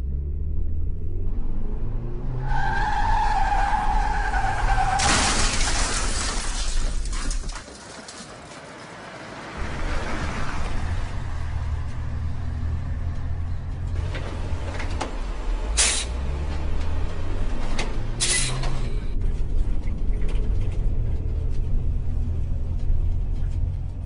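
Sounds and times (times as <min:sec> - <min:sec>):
air brake hisses: 0:15.8 - 0:16.1, 0:18.2 - 0:18.7.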